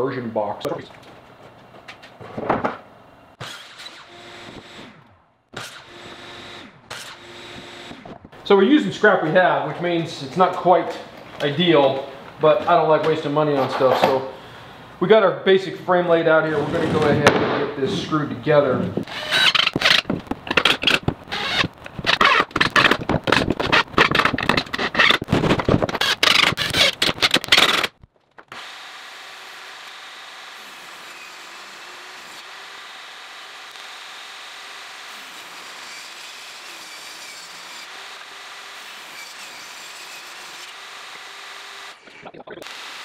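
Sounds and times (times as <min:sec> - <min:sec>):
power driver driving screws: 0:03.4 - 0:08.1, 0:19.0 - 0:25.3, 0:25.9 - 0:28.8
table saw ripping boards: 0:16.6 - 0:17.7, 0:18.9 - 0:43.0.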